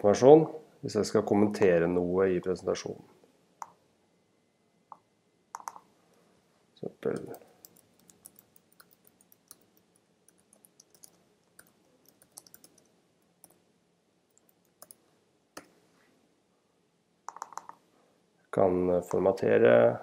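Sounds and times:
keyboard typing clicks: 0:04.9 - 0:05.9, 0:07.1 - 0:13.6, 0:14.3 - 0:15.0, 0:17.3 - 0:17.8.

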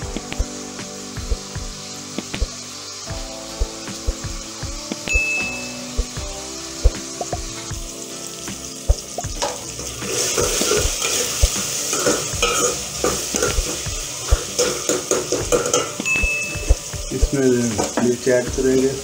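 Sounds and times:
onions sizzling in a pot: 0:00.0 - 0:19.0
metal ladle knocking pot: 0:10.4 - 0:13.8, 0:14.4 - 0:16.8.

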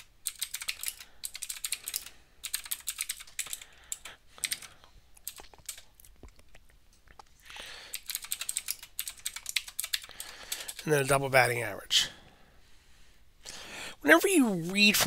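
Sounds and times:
typing on a computer keyboard: 0:00.0 - 0:05.9, 0:07.8 - 0:10.9.

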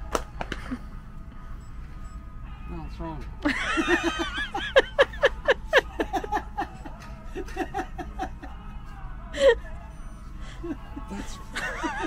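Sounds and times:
people laughing: 0:03.4 - 0:12.0.

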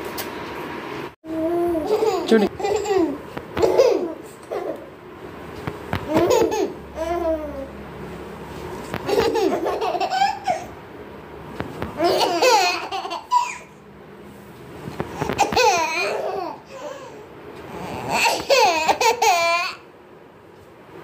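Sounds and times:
small children laughing and babbling: 0:01.3 - 0:04.9, 0:06.0 - 0:07.8, 0:15.4 - 0:17.1.

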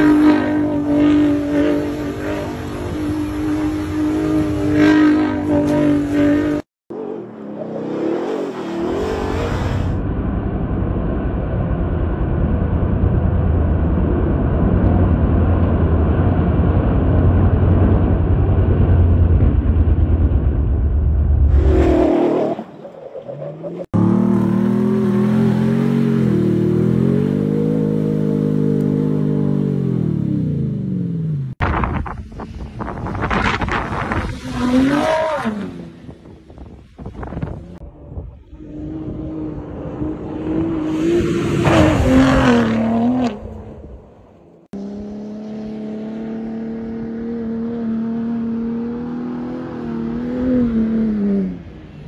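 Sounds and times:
truck engine revving high: 0:00.0 - 0:10.0, 0:23.4 - 0:31.6, 0:32.9 - 0:36.1, 0:38.5 - 0:44.0.

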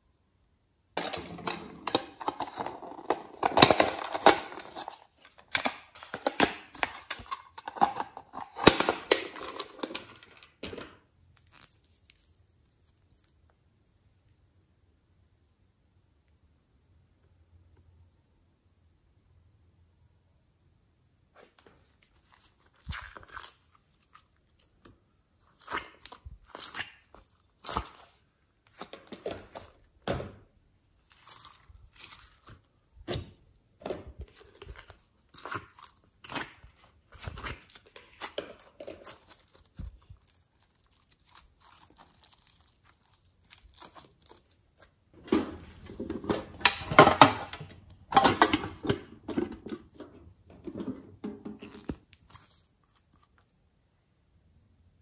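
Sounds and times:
sticky slime crackling: 0:11.3 - 0:13.5, 0:22.0 - 0:30.0, 0:30.8 - 0:33.5, 0:34.1 - 0:45.8, 0:51.6 - 0:53.5.

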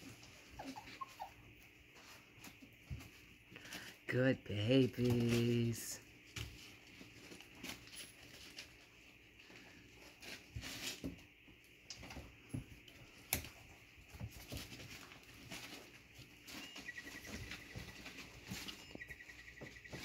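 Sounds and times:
puppy paws pattering and scratching: 0:00.0 - 0:20.0
faint thin chirping: 0:16.4 - 0:17.8, 0:18.6 - 0:20.0.

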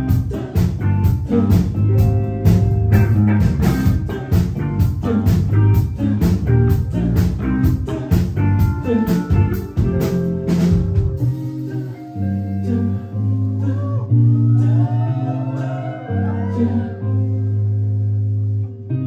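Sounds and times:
steady drum beat: 0:00.0 - 0:11.4
live band playing: 0:00.0 - 0:12.2.

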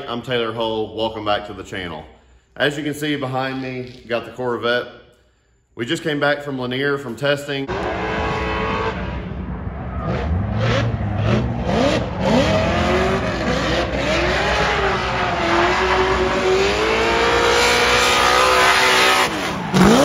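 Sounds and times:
car engine revving: 0:07.7 - 0:20.0.

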